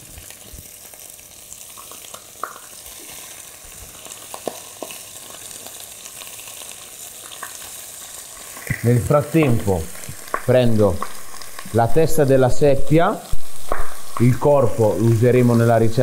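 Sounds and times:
fish frying in oil: 0.0s - 16.0s
sharp oil pops: 13.6s - 14.3s.

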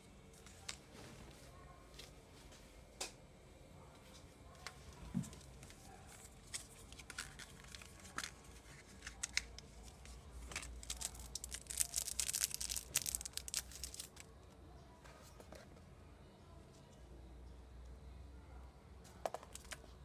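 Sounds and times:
paper and plastic rustling: 5.1s - 14.3s.

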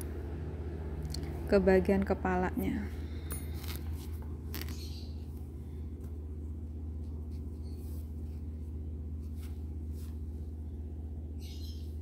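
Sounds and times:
low hum: 0.0s - 12.0s
yarn rustling: 3.5s - 11.0s.

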